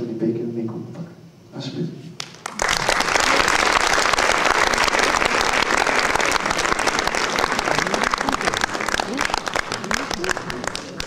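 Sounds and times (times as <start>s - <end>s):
audience applauding: 2.2s - 11.0s.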